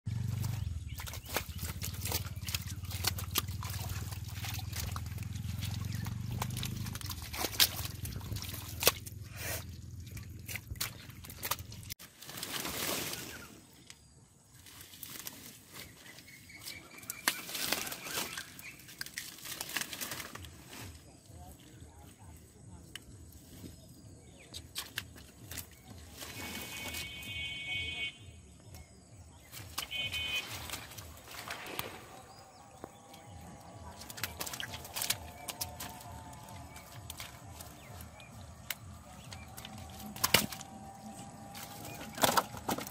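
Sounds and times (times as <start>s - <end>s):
mud and water squelching: 0.1s - 42.9s
plant stems and leaves rustling: 0.2s - 27.4s, 29.4s - 42.9s.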